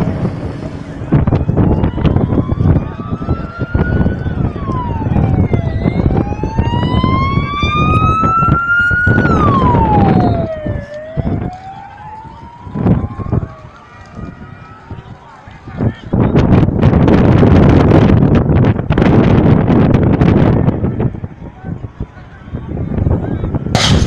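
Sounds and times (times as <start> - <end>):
emergency vehicle siren wailing: 0.0 - 22.9.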